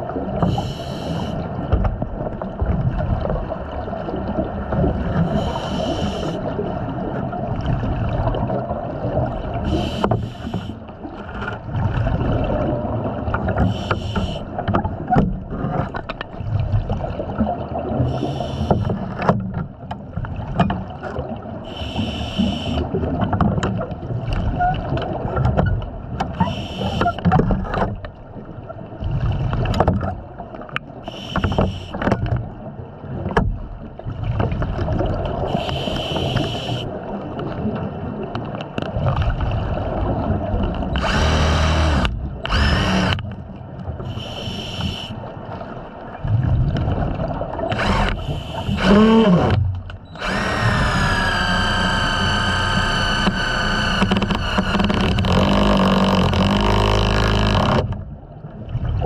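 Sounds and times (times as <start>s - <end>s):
hissing regulator breath: 0.5s - 1.4s, 5.3s - 6.4s, 9.7s - 10.8s, 13.6s - 14.5s, 18.1s - 18.9s, 21.7s - 22.8s, 31.1s - 32.0s, 35.5s - 36.9s, 44.1s - 45.2s, 47.7s - 49.5s
bubbling rumble: 1.7s - 5.5s, 11.2s - 13.6s, 45.6s - 51.3s.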